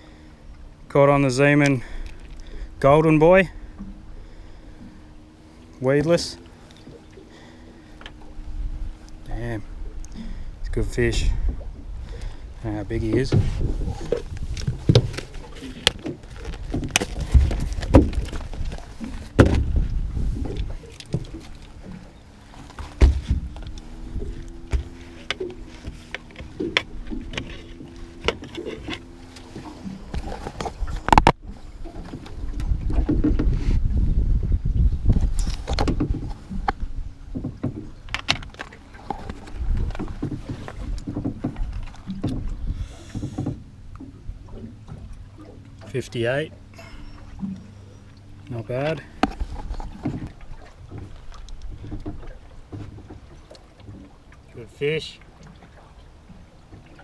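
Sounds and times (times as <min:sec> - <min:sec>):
low rumble: 0:07.8 - 0:37.4
knocks and clicks of handled gear: 0:13.1 - 0:19.8, 0:22.5 - 0:31.4, 0:37.4 - 0:42.5, 0:48.8 - 0:50.3.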